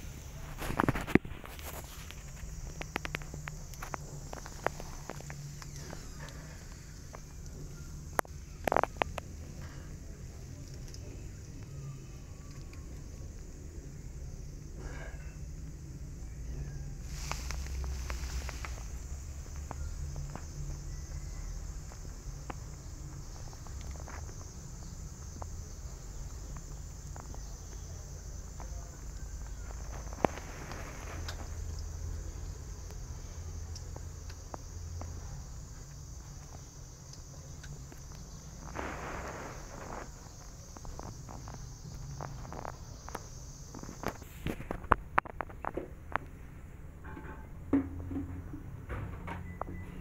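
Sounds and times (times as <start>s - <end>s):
steady high hiss: 0.0s - 47.4s
soft ticks and rustles: 0.5s - 13.5s, 17.0s - 46.4s
fabric rustling: 17.0s - 19.2s.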